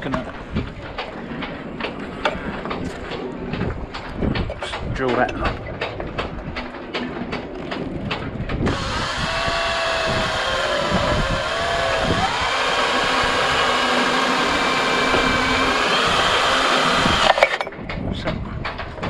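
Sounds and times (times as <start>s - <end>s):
cordless drill whining: 8.7s - 17.4s.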